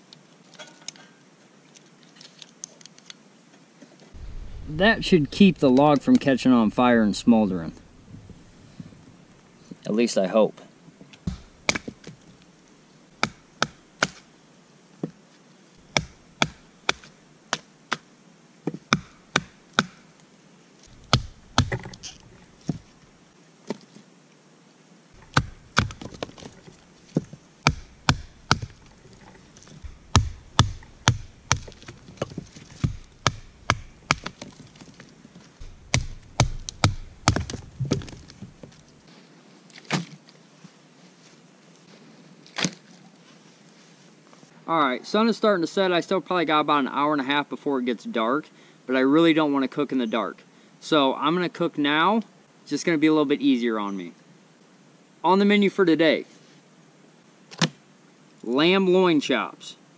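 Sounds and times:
blade chopping wood: 11.3 - 12.1, 13.2 - 14.2, 15.9 - 18.0, 20.9 - 23.0, 25.2 - 35.0, 35.6 - 38.8.

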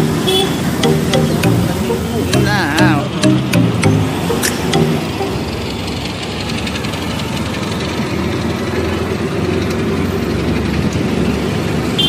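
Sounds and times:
auto-rickshaw engine running: 0.0 - 0.8, 5.1 - 12.0
road noise: 0.0 - 12.0.

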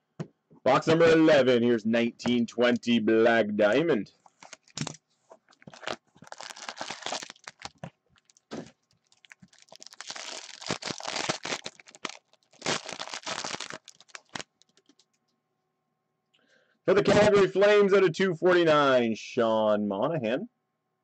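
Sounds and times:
foil wrappers crinkling and tearing: 4.4 - 15.1.

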